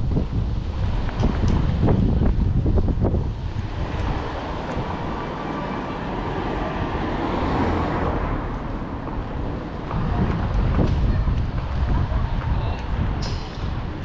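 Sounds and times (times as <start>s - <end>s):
street noise: 0.0s - 14.0s
vehicle passing: 2.6s - 12.4s.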